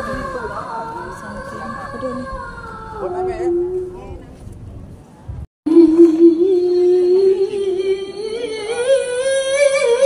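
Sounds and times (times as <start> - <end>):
person singing long note: 5.7 - 10.0.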